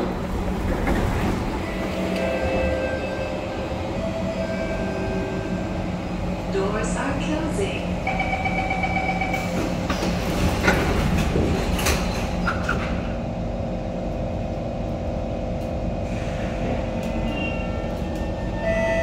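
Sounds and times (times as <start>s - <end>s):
train hum with held tones: 0.0s - 19.0s
knocks and rattles: 9.9s - 13.0s.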